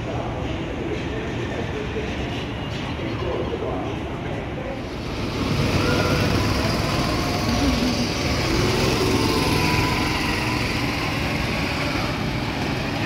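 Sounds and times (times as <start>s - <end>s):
amusement ride rumbling: 0.0s - 13.0s.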